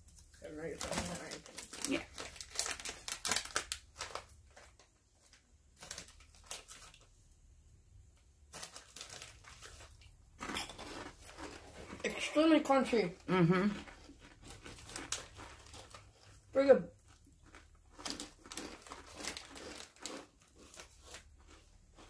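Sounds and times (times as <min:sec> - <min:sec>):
plastic snack bag crinkling: 0:00.0 - 0:07.4, 0:08.1 - 0:22.0
crunchy puffs being eaten: 0:08.5 - 0:22.0.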